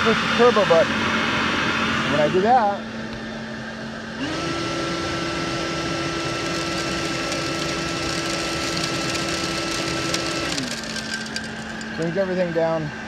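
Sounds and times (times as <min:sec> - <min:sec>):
leaf blower whining: 0:00.0 - 0:13.0
dirt and gravel rattling: 0:07.1 - 0:12.4.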